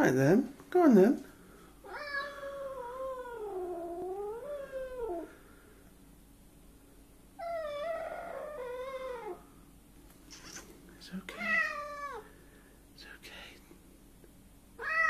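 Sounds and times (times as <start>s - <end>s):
cat yowling: 1.8s - 5.3s, 7.4s - 9.4s, 11.3s - 12.3s, 14.8s - 15.0s.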